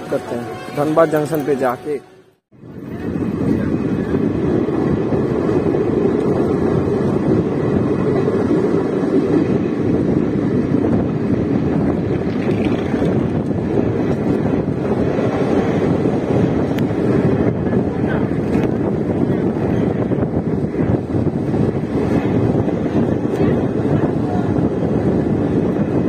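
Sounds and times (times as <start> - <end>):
moving train running noise: 0.0 - 26.0
wind rushing on microphone: 2.5 - 26.0.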